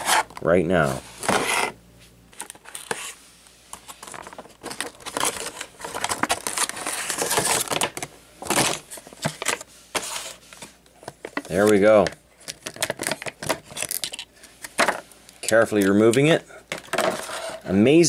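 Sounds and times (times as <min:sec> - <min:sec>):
plastic packaging crinkling: 0:03.8 - 0:10.3, 0:11.4 - 0:14.7.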